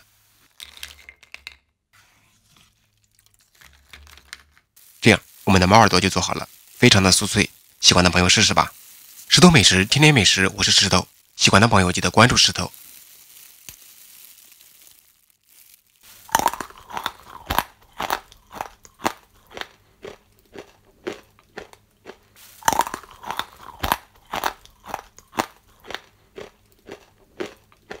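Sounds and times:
crunchy pastry chewing: 12.6s - 28.0s.

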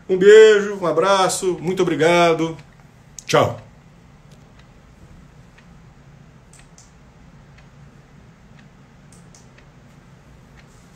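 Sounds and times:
steady low hum: 0.0s - 10.9s
faint irregular clicks: 2.6s - 5.8s, 6.5s - 7.8s, 8.5s - 10.9s.

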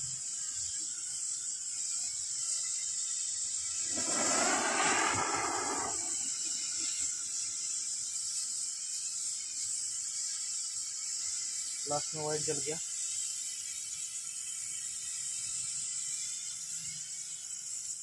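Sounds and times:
flash torch hissing: 3.8s - 6.3s
rough torch surge: 3.9s - 6.3s.

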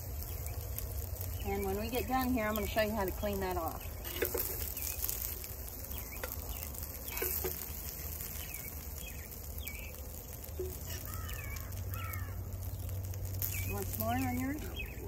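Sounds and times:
birds chirping: 0.0s - 15.0s
spatula scraping a skillet: 4.0s - 5.4s, 7.0s - 8.7s.

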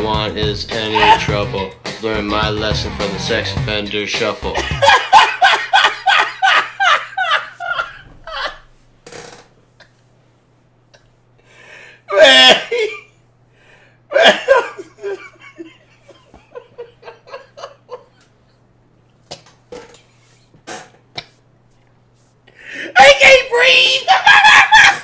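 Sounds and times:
man laughing hard: 0.8s - 1.6s, 4.4s - 8.6s, 12.1s - 13.1s, 14.1s - 18.3s, 24.1s - 25.0s.

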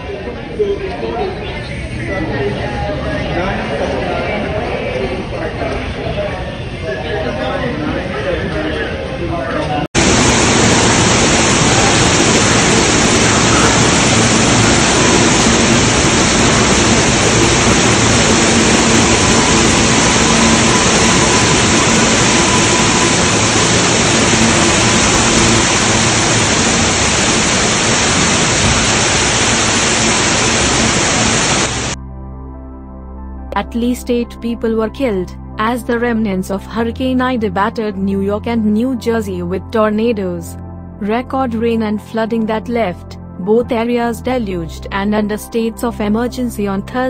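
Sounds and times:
faint train hum: 10.0s - 31.9s
water pouring in heavy cascade: 10.0s - 32.0s.

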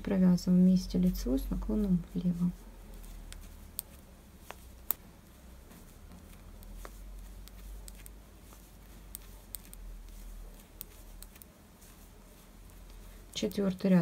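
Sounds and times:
low steady hum: 0.0s - 14.0s
knitting needles clicking: 1.4s - 12.0s.

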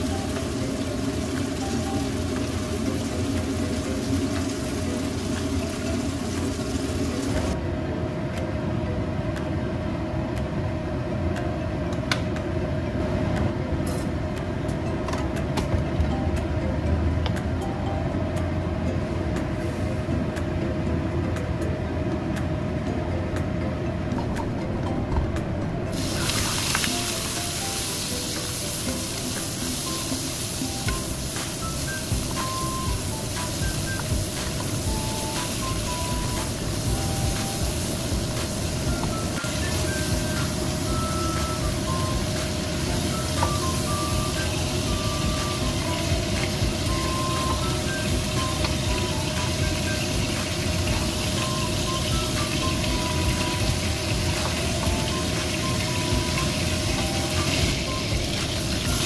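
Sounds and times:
meat sizzling in a wok: 0.0s - 7.6s, 25.9s - 59.0s
machine hum: 0.0s - 59.0s
soft background music: 0.0s - 59.0s.

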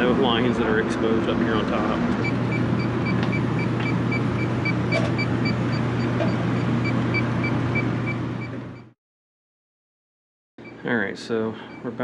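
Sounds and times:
loud machine hum: 0.0s - 8.9s
leak detector beeping: 2.2s - 9.0s.

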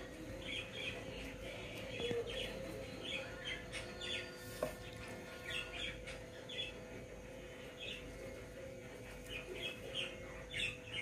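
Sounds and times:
budgerigars chirping: 2.0s - 6.8s, 9.2s - 11.0s.

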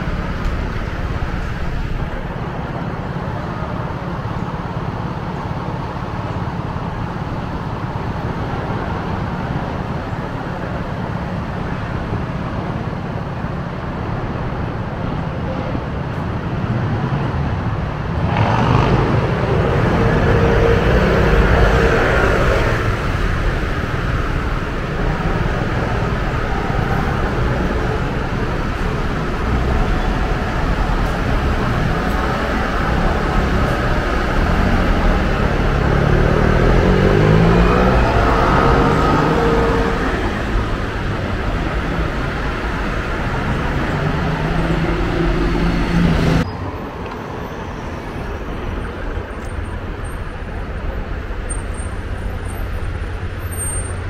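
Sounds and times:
city street traffic: 0.0s - 54.0s
vehicle passing close: 17.5s - 46.4s.

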